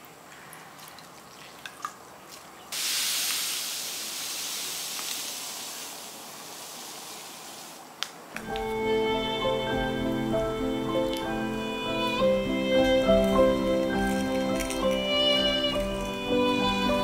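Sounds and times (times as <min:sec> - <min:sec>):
water dripping: 0:00.0 - 0:08.8
sugar pouring into bowl: 0:12.2 - 0:17.0.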